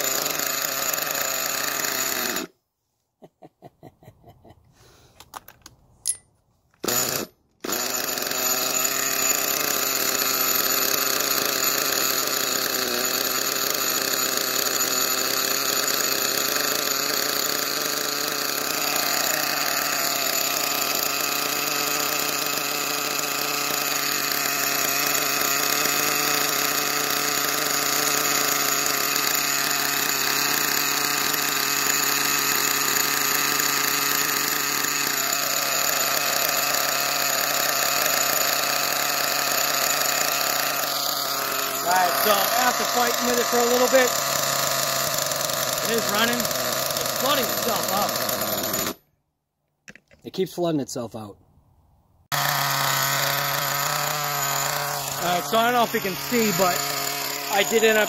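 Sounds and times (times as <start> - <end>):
model truck engine idling: 9.6 - 48.7, 52.4 - 58.0.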